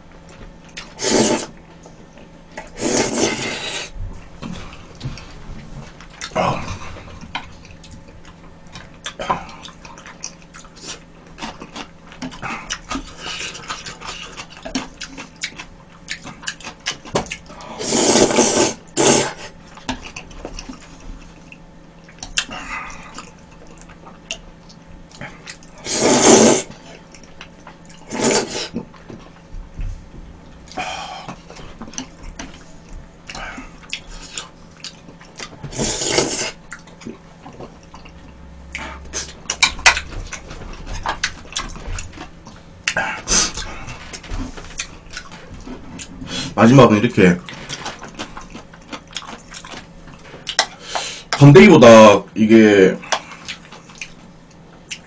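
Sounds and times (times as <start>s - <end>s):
wet mouth sounds: 0.7s - 1.6s, 2.6s - 4.0s, 6.2s - 20.8s, 21.5s - 29.0s, 33.2s - 41.8s
slurping from a bowl: 0.8s - 1.6s, 2.7s - 4.0s, 17.8s - 19.6s, 25.7s - 27.0s, 28.0s - 28.8s, 35.6s - 36.6s.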